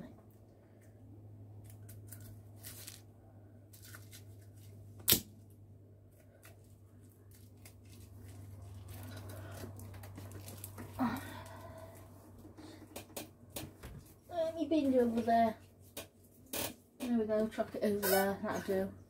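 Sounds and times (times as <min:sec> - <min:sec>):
plastic packaging crinkling: 0:01.7 - 0:03.1, 0:06.4 - 0:11.0.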